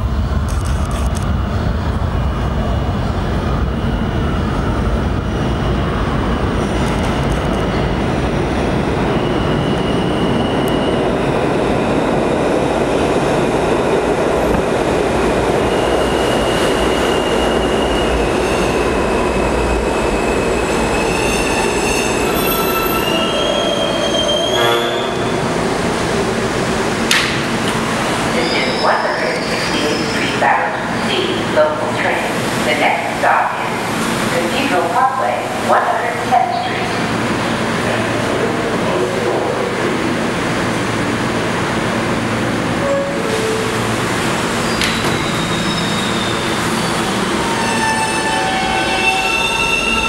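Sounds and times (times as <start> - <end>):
train wheels rumbling on rails: 0.0 - 50.0
high-pitched brake squealing: 15.7 - 25.3, 28.4 - 30.2, 44.6 - 50.0.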